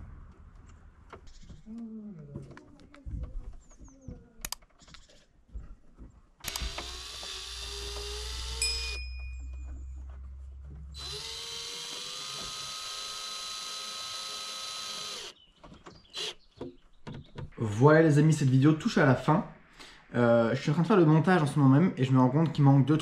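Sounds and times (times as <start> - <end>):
sharp clicks: 4.4 - 5.1, 6.4 - 8.6
cordless drill spinning: 6.4 - 9.1, 10.9 - 15.4.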